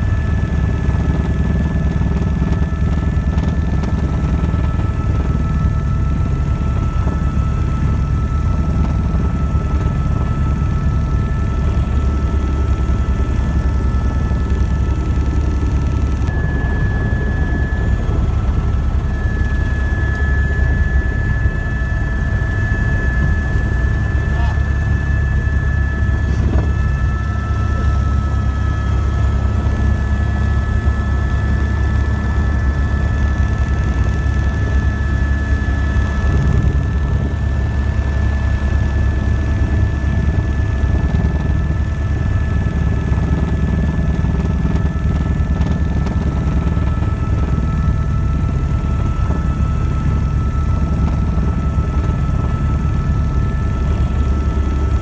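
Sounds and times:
helicopter rotor beat: 0.0 - 55.0
high whine: 2.8 - 38.8.

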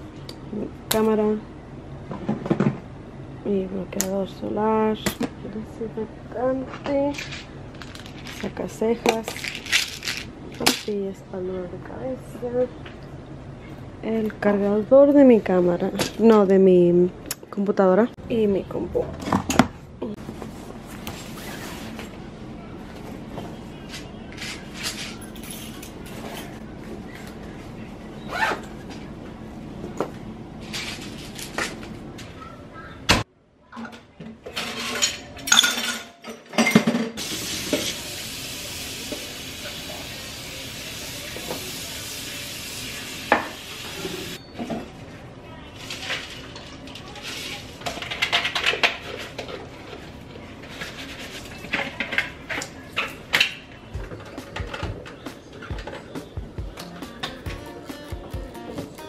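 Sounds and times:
dishes clattering in sink: 33.8 - 38.0.

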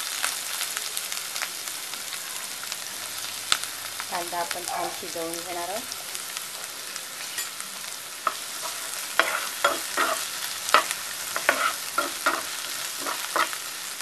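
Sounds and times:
onions sizzling in oil: 0.0 - 14.0
spatula scraping a pan: 8.2 - 13.8.

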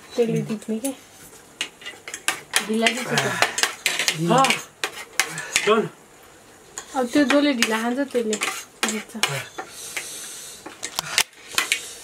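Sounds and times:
cutlery clinking against plates: 1.6 - 5.8, 6.8 - 10.1.

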